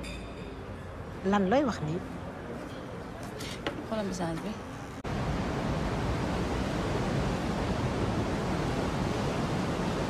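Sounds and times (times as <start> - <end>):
waves breaking on shore: 5.1 - 10.0.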